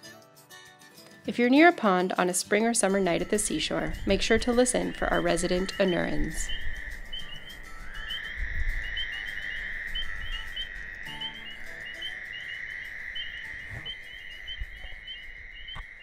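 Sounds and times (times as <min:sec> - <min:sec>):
frogs trilling: 0:03.0 - 0:16.0
frog chirps: 0:04.7 - 0:16.0.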